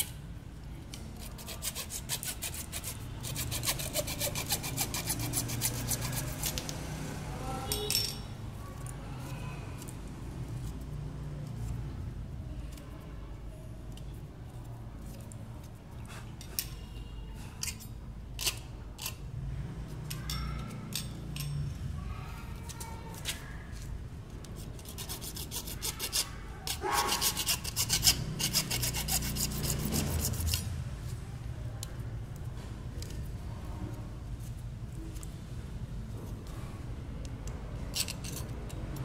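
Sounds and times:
hand tools scraping plastic pipe: 0.9 - 6.8, 24.4 - 30.7
quick rasping strokes: 1.2 - 6.8, 24.6 - 30.7.

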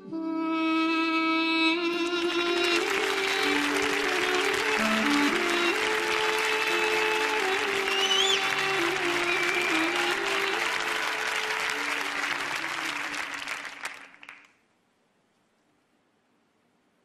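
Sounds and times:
music with held tones: 0.0 - 13.1
audience applause: 1.9 - 14.6.

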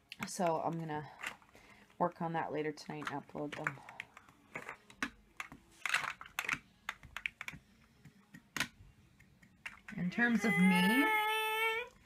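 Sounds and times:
plastic toy blocks clicking: 3.0 - 7.6.

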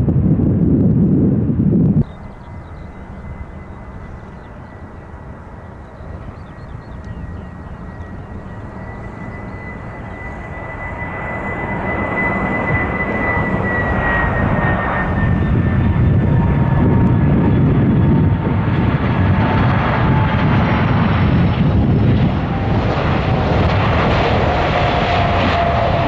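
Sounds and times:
jet engines whining: 0.0 - 26.0
loud low rumble: 0.0 - 26.0.

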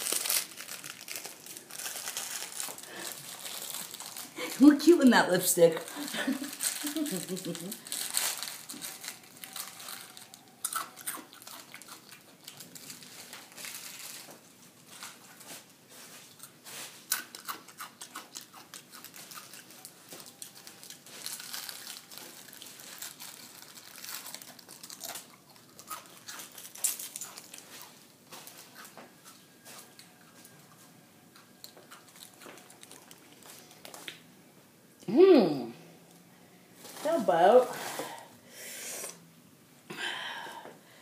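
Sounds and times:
potato chips being crushed: 0.0 - 5.1, 5.8 - 15.7, 16.3 - 30.6, 31.4 - 34.2.

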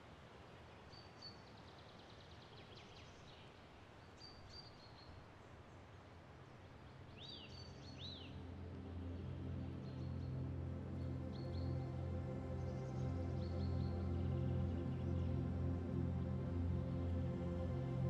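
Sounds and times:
small birds chirping: 6.6 - 17.2
ambient music drone: 7.7 - 18.0.

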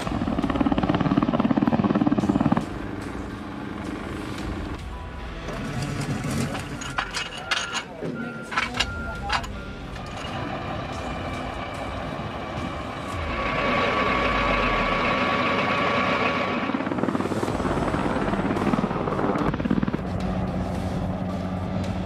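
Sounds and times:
helicopter rotor chop: 0.0 - 4.8, 10.0 - 22.0
helicopter turbine whine: 0.0 - 5.0, 9.7 - 22.0.

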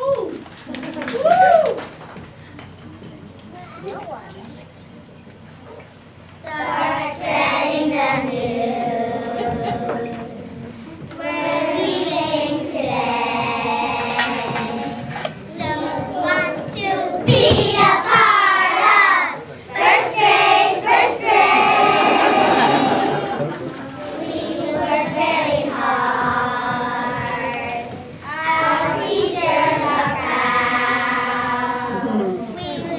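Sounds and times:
children singing: 6.5 - 32.9.

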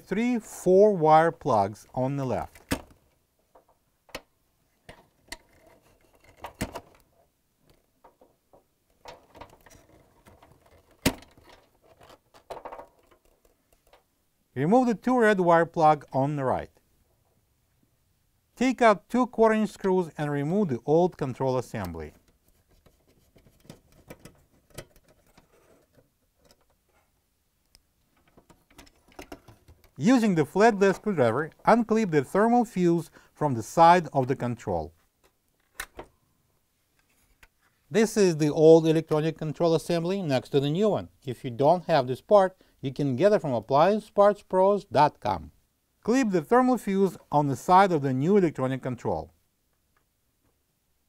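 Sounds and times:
wires rustling: 1.4 - 14.2, 21.7 - 32.2.

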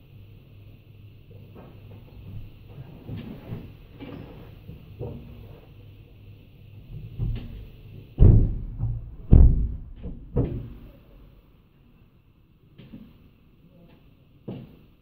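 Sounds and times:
thumps on metal lorry body: 7.1 - 10.9
loud bangs: 8.2 - 10.9.

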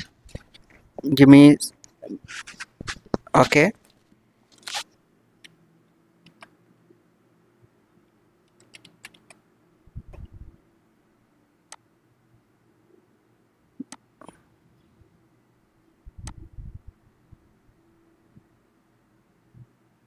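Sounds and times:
keyboard keystrokes: 8.5 - 9.4.

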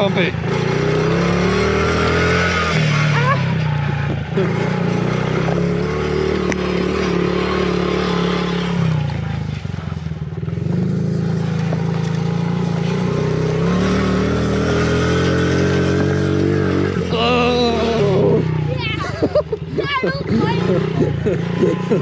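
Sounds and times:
dirt bike engine: 0.0 - 22.0.

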